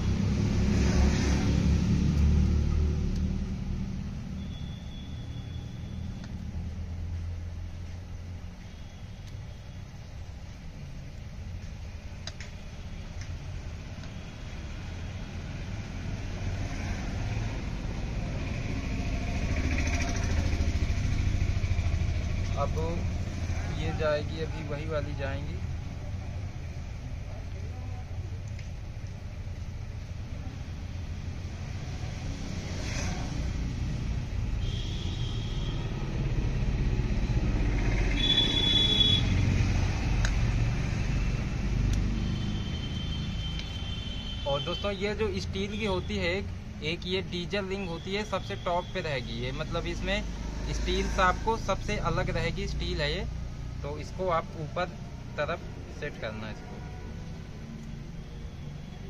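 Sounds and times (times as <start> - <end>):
vehicle engine approaching: 0.0 - 4.4, 14.6 - 34.6, 35.5 - 43.6, 49.2 - 59.0.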